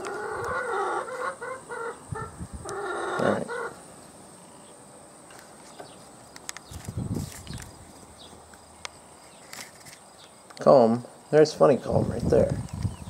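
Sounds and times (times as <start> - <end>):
chicken calling: 0.0 - 3.9.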